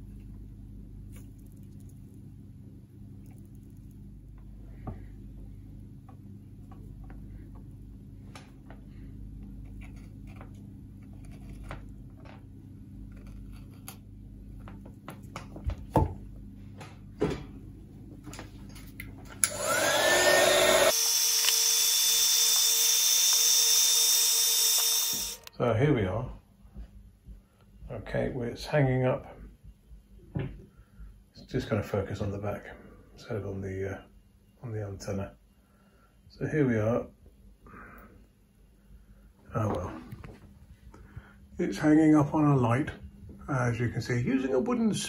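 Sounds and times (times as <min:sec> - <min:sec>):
low steady hum: 0:00.0 - 0:20.9, 0:25.3 - 0:45.0
heat gun blowing: 0:19.4 - 0:25.5.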